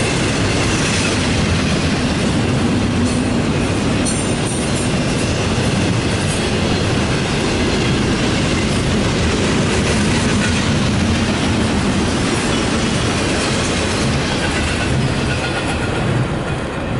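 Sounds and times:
freight train wheels rumbling on rail: 0.0s - 16.9s.

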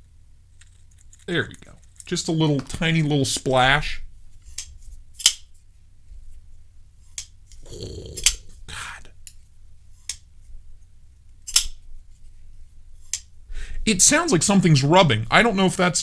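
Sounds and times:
folding knife metallic clicks: 11.5s - 11.8s.

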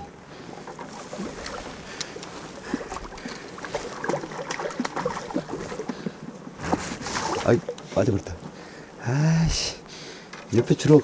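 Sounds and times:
fish thrashing in water: 0.4s - 8.6s.

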